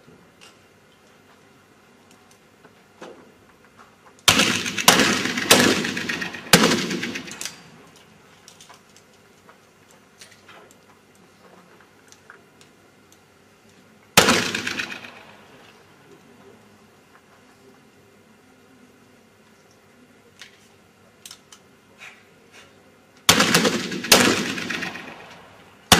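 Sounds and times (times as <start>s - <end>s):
pistol shots: 4.3s - 7.6s, 14.2s - 15.5s, 23.3s - 25.9s.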